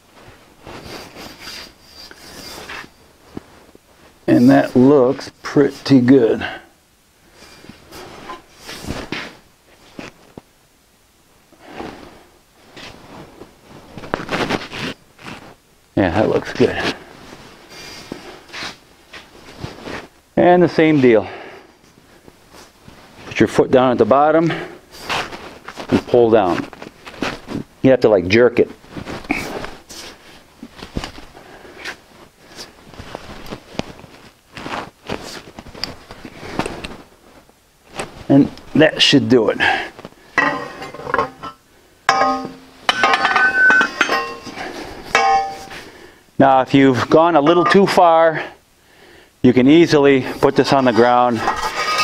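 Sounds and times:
metal scraping and rattling: 0.8 - 3.0, 40.4 - 45.8, 47.0 - 48.0, 50.2 - 52.0
scuffing and rustling: 7.5 - 10.5, 12.6 - 15.6, 28.8 - 38.8
sharp metal clinks: 42.1 - 45.8.

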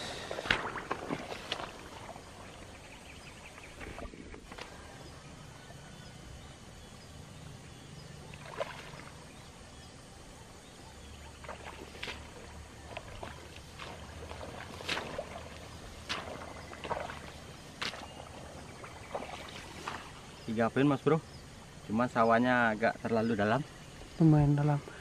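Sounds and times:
boots squelching in mud: 0.3 - 2.4, 11.4 - 20.2.

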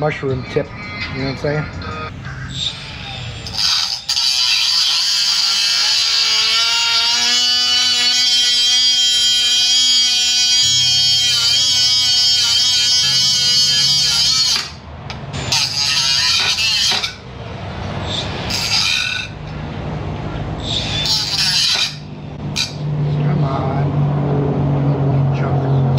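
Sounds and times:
cutoff wheel cutting steel: 2.5 - 17.3, 18.0 - 19.6, 20.6 - 22.8.

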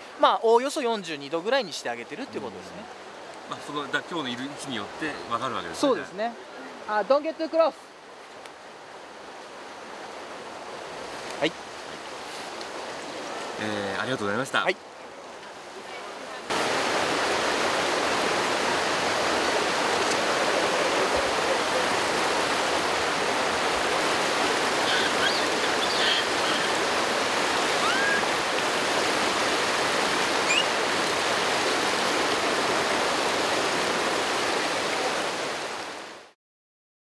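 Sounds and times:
flowing water: 0.0 - 36.4.

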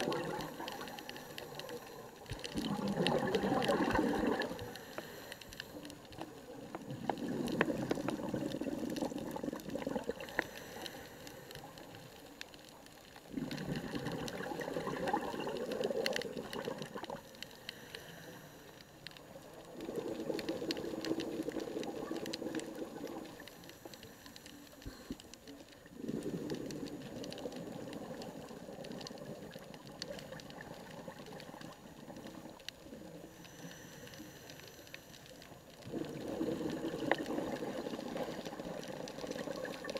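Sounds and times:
scuba regulator bubbling exhalation: 0.0 - 5.2, 6.7 - 11.0, 13.3 - 17.9, 19.7 - 23.4, 25.9 - 33.4, 35.8 - 39.9
faint clicks: 0.0 - 39.9
regulator inhalations: 4.6 - 5.8, 17.5 - 19.0, 33.3 - 35.2.

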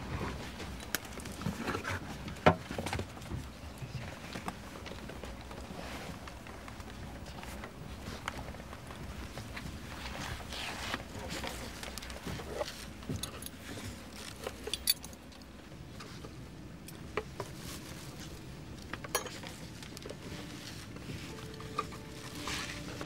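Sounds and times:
airliner cabin hum: 15.6 - 23.0
cutlery and food containers clinking: 19.1 - 19.6.

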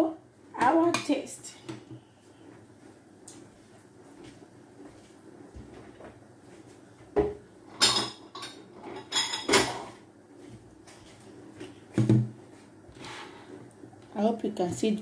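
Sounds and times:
dishes and cutlery clattering: 7.7 - 10.0.

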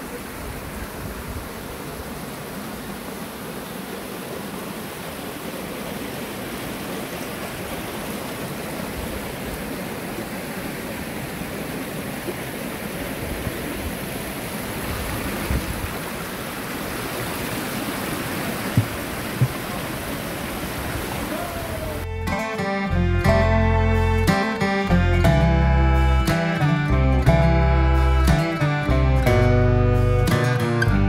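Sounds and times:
stream water rushing over weir: 0.0 - 23.0
low thumps: 18.7 - 19.7.

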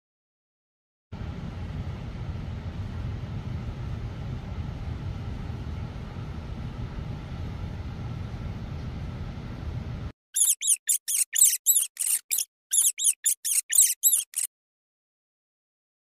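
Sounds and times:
rodent squeaking: 10.4 - 14.5.

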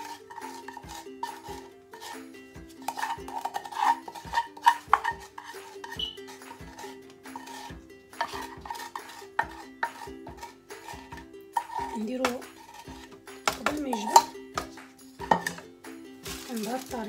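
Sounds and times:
spatula scraping a saucepan: 0.0 - 15.6
background music with a beat: 0.0 - 17.0.

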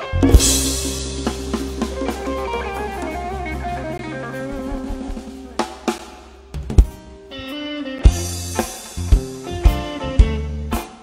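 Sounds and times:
sharp drum hits: 0.0 - 7.1
instrumental band music: 0.0 - 11.0.

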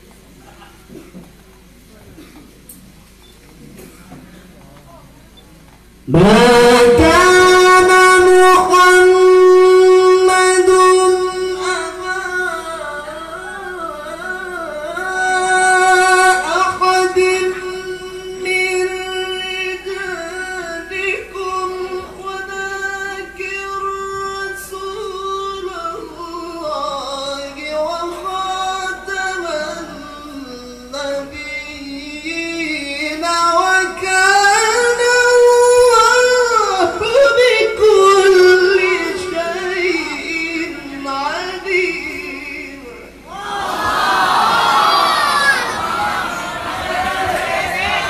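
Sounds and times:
man reciting melodically: 5.9 - 43.4.

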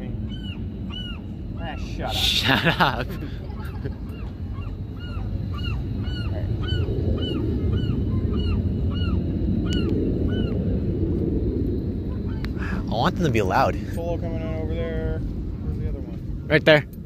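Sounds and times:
low rumbling noise: 0.0 - 17.0
gull honking calls: 0.2 - 10.6.

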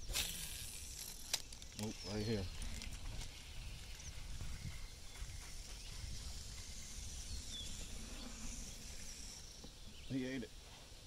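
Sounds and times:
high bird chirps: 1.8 - 10.4
faint hiss: 5.6 - 11.0.

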